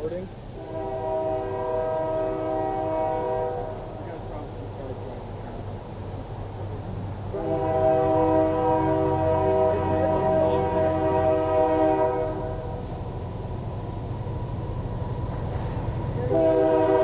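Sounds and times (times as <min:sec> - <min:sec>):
locomotive air horn blast: 0:00.6 - 0:04.0, 0:07.3 - 0:13.0, 0:16.2 - 0:17.0.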